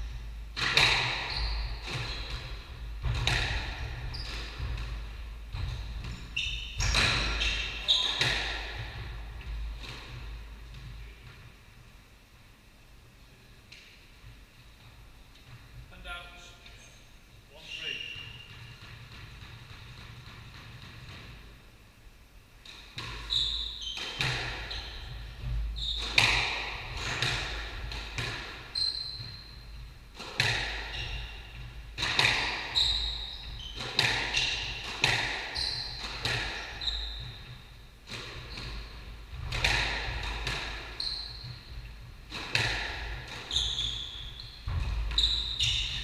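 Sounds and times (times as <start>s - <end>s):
shoes squeaking on wooden floor: 0.8s - 11.1s, 23.0s - 29.8s, 30.8s - 46.0s.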